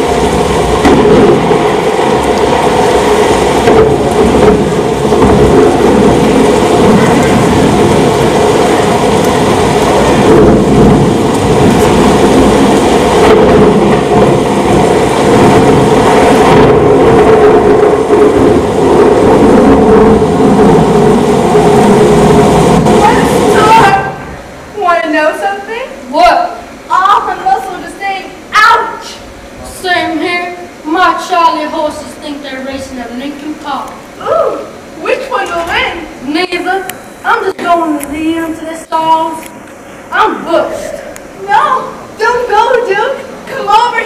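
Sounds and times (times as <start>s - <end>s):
rumbling thunder: 0.0s - 33.4s
heavy rain: 0.0s - 44.0s.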